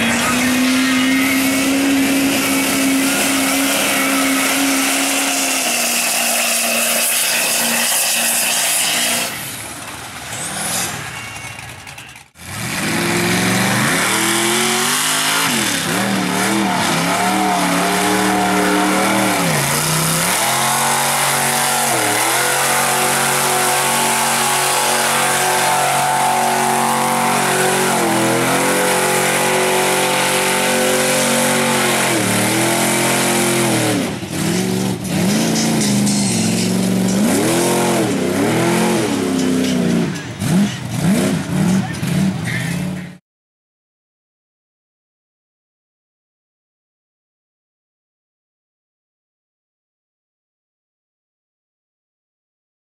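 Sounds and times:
truck engines revving high: 0.0 - 43.2.

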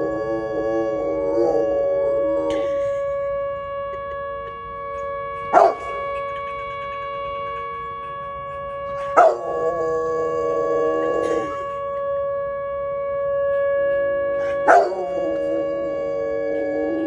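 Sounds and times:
dog howling: 0.0 - 4.0, 5.4 - 6.3, 8.9 - 13.0, 14.3 - 17.0
siren wailing: 0.0 - 17.0
dog barking: 5.5 - 6.0, 9.2 - 9.4, 14.5 - 15.0.

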